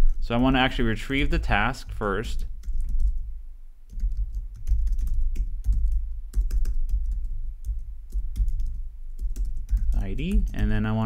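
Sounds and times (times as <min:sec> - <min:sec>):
typing on keyboard: 0:02.6 - 0:03.2, 0:03.9 - 0:10.8.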